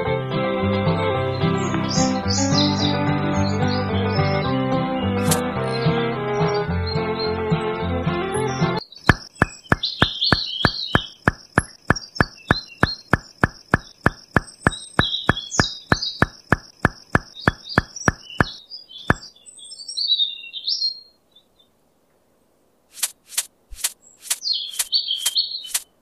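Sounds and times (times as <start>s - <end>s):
birds chirping: 0.7s - 21.7s, 23.0s - 26.0s
fast even clicking: 5.2s - 5.4s, 9.0s - 19.2s, 23.0s - 25.9s.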